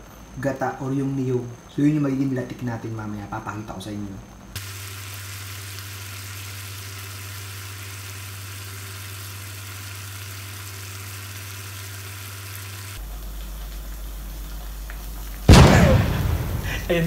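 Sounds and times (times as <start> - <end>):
coconut milk sizzling in a wok: 4.6 - 17.0
steady low hum: 12.8 - 17.0.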